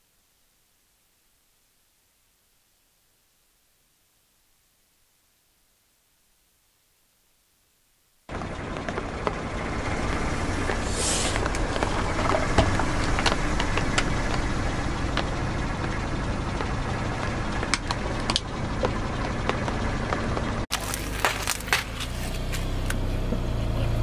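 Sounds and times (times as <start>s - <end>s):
low engine rumble: 8.3s - 24.0s
short hiss: 10.8s - 11.4s
tyre crushing plastic toys: 20.7s - 23.0s.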